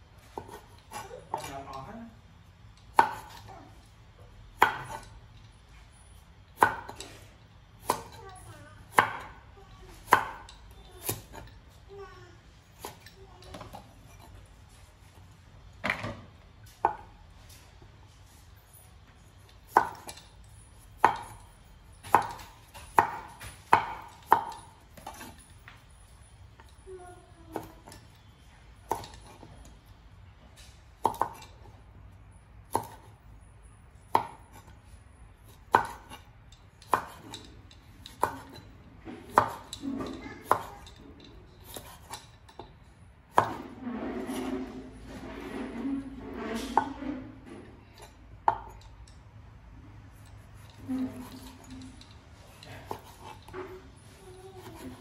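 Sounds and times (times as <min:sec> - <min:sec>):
cleaver chopping on wooden board: 0:03.0 - 0:03.4, 0:04.6 - 0:05.1, 0:22.1 - 0:25.2, 0:31.0 - 0:31.5, 0:35.7 - 0:36.2, 0:36.9 - 0:37.4, 0:38.1 - 0:38.6, 0:39.3 - 0:39.7
soft scraping rustle: 0:43.7 - 0:47.9.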